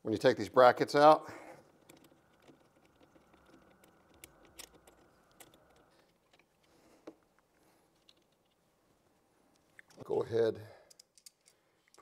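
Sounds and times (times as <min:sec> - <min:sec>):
small metal hardware clicking: 0:01.7 - 0:06.7.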